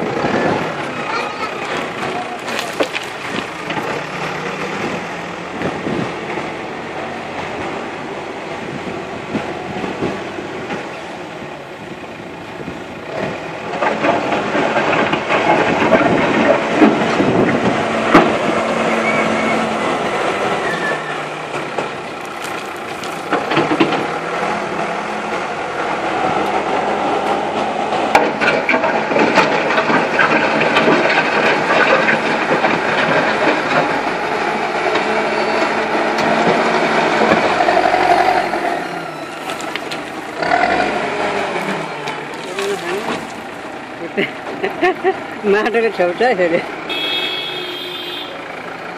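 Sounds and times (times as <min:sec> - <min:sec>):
diesel engine under load: 0:00.0 - 0:48.9.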